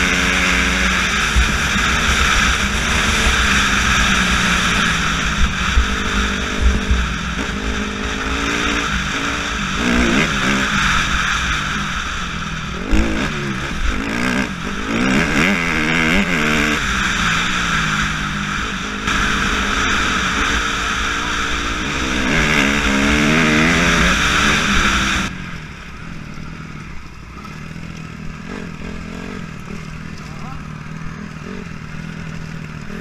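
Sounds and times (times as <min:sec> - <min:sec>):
wind noise: 0:00.0 - 0:25.3
motorcycle engine revving: 0:00.0 - 0:33.0.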